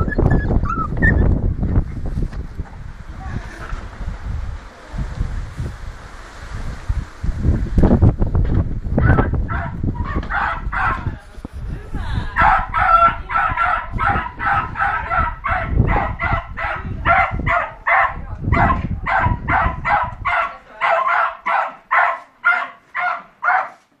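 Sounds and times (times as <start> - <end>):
dog barking rapidly: 9.0 - 11.1, 12.4 - 23.9.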